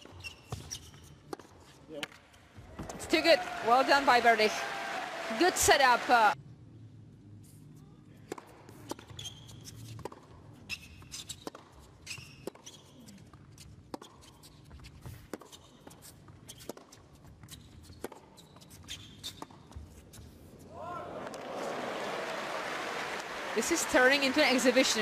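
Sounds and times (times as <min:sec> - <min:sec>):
shoes squeaking on court: 0:00.0 - 0:01.9, 0:08.7 - 0:20.6.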